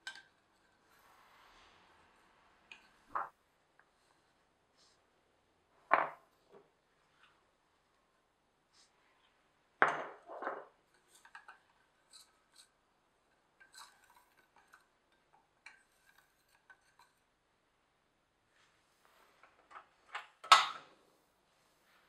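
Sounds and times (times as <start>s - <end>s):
spoon stirring in a metal saucepan: 13.6s - 14.9s.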